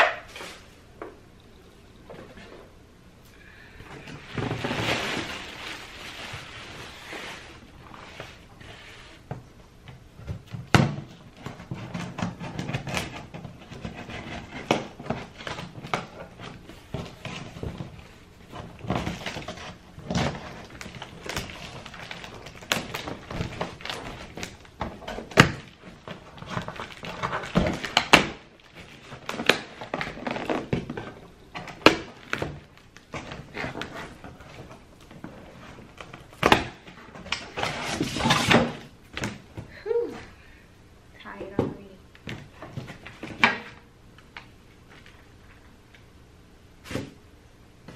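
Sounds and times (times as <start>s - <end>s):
packaging rustling: 4.0s - 8.5s, 11.5s - 39.4s
knocks and thunks of boxes: 9.2s - 39.8s.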